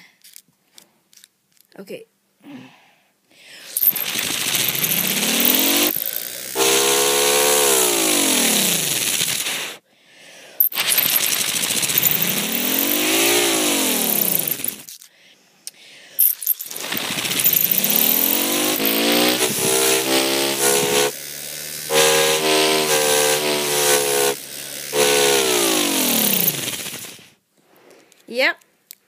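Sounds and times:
loud rushing hiss: 0:03.8 - 0:09.8, 0:16.6 - 0:27.3
model siren wailing: 0:18.8 - 0:21.1, 0:21.9 - 0:26.5.

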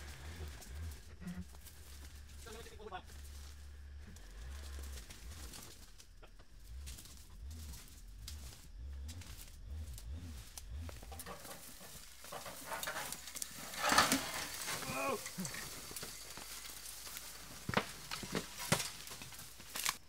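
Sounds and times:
footsteps through tall grass: 0:00.0 - 0:20.0
steel frame rattling: 0:10.7 - 0:16.8.

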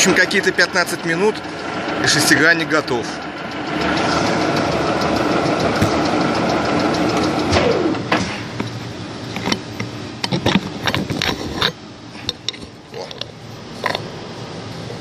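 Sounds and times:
milling machine spindle running: 0:00.0 - 0:09.9.

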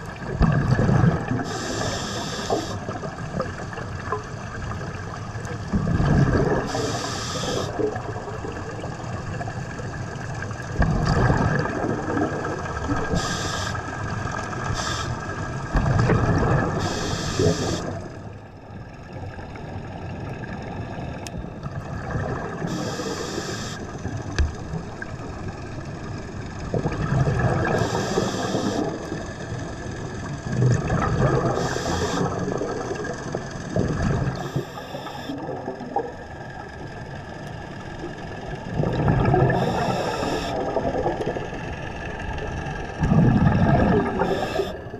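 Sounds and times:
exhaled bubbles rumbling: 0:00.0 - 0:44.9
regulator inhale hiss: 0:01.4 - 0:02.9, 0:06.6 - 0:07.8, 0:13.0 - 0:14.0, 0:14.6 - 0:15.4, 0:16.8 - 0:18.0, 0:22.7 - 0:24.0, 0:27.8 - 0:29.0, 0:31.5 - 0:32.4, 0:34.4 - 0:35.4, 0:39.5 - 0:40.6, 0:44.2 - 0:44.9.

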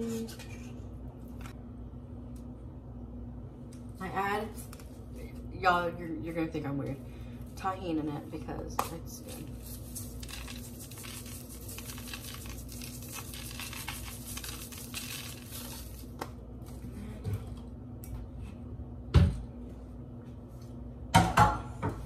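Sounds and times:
seasoning shaker rattling: 0:08.8 - 0:16.2.

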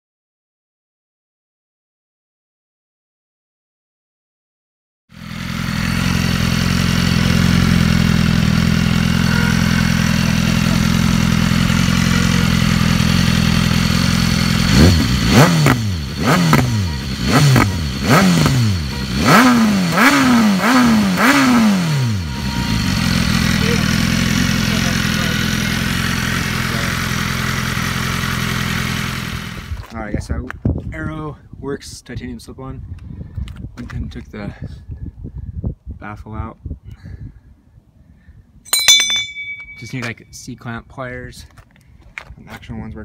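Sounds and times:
motorcycle engine idling: 0:05.2 - 0:19.4, 0:22.1 - 0:29.8, 0:38.7 - 0:40.0
motorcycle throttle blips: 0:38.7 - 0:40.1.

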